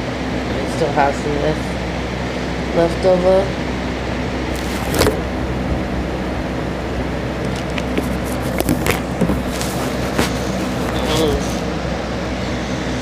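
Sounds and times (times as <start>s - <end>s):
sharp clicks and rustles: 4.5s - 5.2s, 7.4s - 11.6s.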